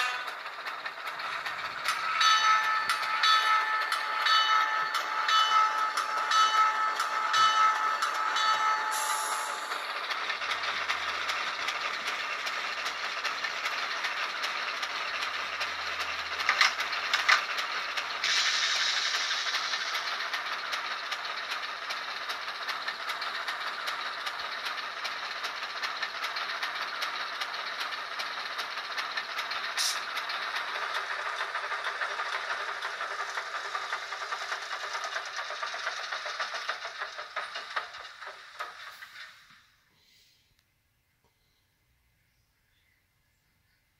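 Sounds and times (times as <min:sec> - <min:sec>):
sharp clanks: 0:00.0 - 0:24.8
model diesel engine sound: 0:00.0 - 0:40.4.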